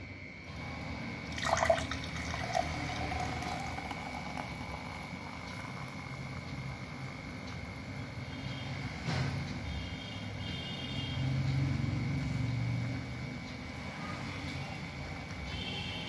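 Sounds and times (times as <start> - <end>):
soda water pouring and fizzing: 0.6 - 7.5.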